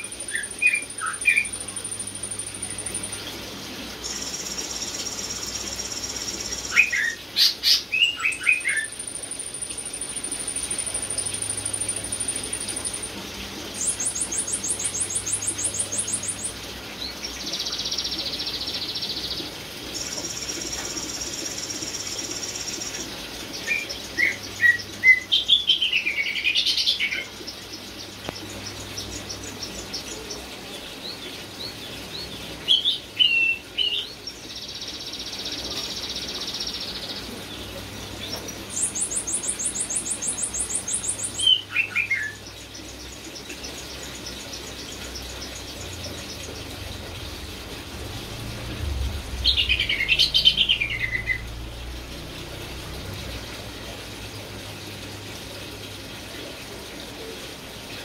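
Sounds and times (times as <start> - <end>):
bird singing trills and whistles: 0.0 - 3.2, 4.0 - 13.1, 13.8 - 16.5, 38.7 - 42.5.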